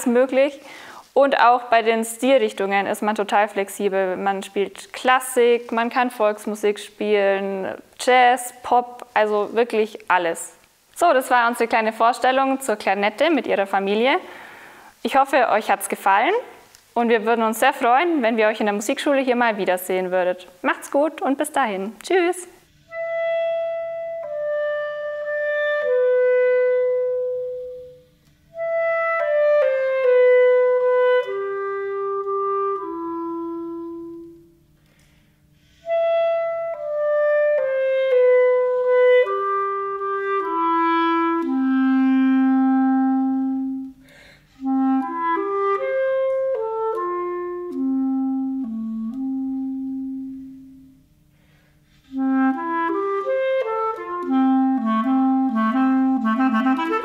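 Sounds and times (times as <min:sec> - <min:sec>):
solo clarinet melody: 0:22.7 - 0:34.7, 0:35.6 - 0:51.2, 0:51.8 - 0:57.0.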